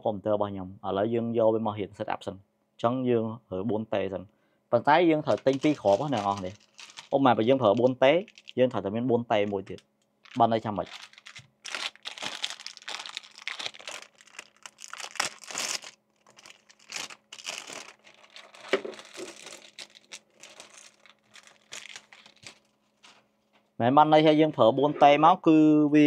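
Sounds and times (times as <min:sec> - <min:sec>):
anti-static bag crinkling: 0:05.2 - 0:23.7.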